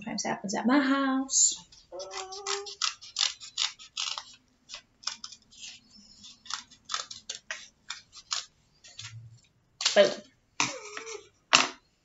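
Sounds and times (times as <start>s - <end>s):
scissors snipping paper: 1.7s - 9.2s.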